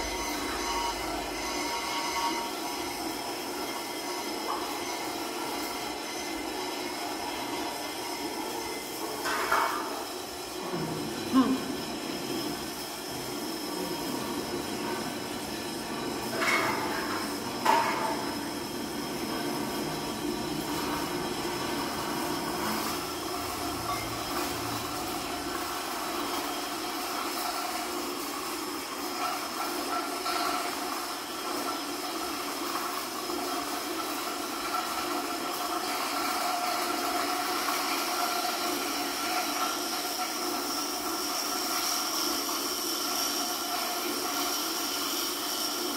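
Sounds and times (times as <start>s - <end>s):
rumbling hissing electronic drone: 0.0s - 3.8s, 5.2s - 29.0s.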